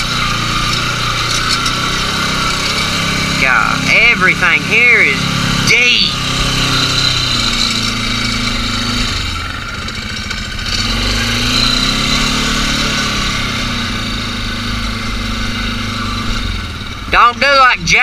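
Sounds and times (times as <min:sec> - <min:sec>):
atv engine running: 0:00.0 - 0:18.0.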